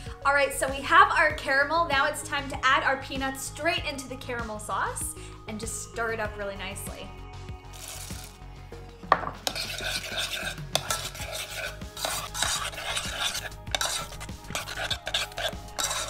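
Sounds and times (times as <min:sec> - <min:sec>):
stirring scraping against pot: 0:07.7 - 0:08.4, 0:09.4 - 0:16.0.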